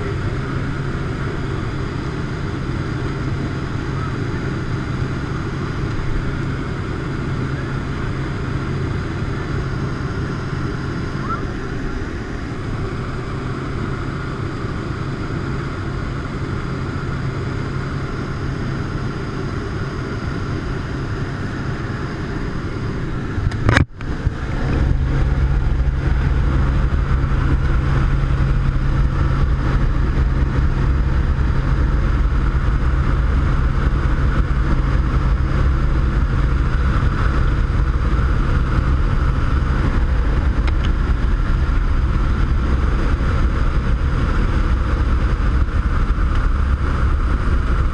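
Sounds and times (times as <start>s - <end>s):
plane engine and propeller drone: 0.0s - 47.9s
rushing air: 20.5s - 47.9s.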